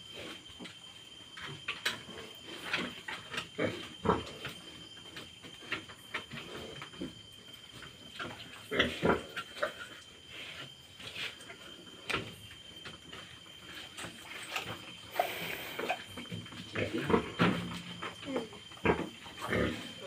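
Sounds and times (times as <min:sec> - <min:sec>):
pigs grunting: 0:03.5 - 0:04.5, 0:08.6 - 0:09.9, 0:15.1 - 0:16.1, 0:18.4 - 0:20.0.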